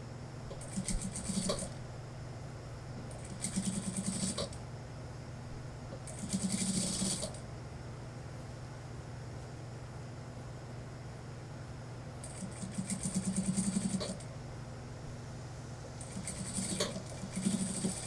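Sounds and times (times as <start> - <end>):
steady low hum: 0.0 - 18.0
sewing machine stitching: 0.5 - 1.8, 3.2 - 4.6, 6.1 - 7.4, 12.2 - 14.2, 16.0 - 18.0.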